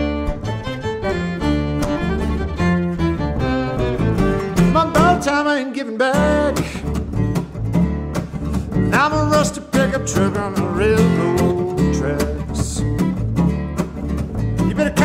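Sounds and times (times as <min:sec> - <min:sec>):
fiddle: 0:00.0 - 0:05.4
upright bass: 0:00.0 - 0:05.4, 0:06.2 - 0:15.0
strummed acoustic guitar: 0:00.0 - 0:15.0.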